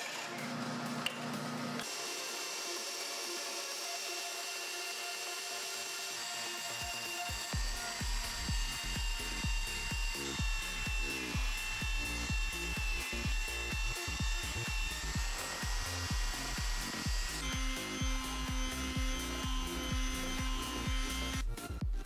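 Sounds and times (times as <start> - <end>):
belt sander sanding wood: 0.0 - 21.6
electronic music with steady beat: 7.2 - 22.0.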